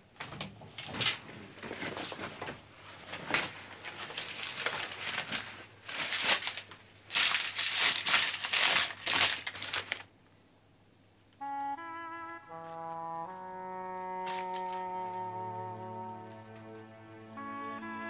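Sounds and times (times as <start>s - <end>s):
rustling crinkling handling noise: 0.3s - 10.1s, 12.5s - 15.4s
brass music: 11.4s - 18.0s.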